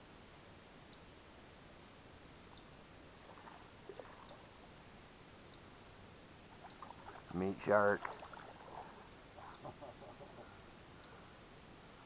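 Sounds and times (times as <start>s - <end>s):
faint outdoor hiss: 0.0s - 12.0s
faint high ticks: 4.2s - 4.4s, 11.0s - 11.2s.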